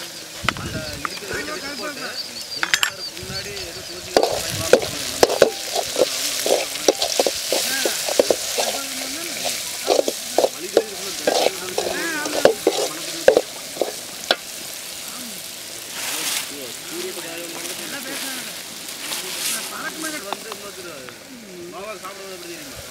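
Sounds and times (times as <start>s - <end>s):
food sizzling in a pan: 0.0s - 22.9s
ladle scraping metal pan: 4.2s - 14.4s.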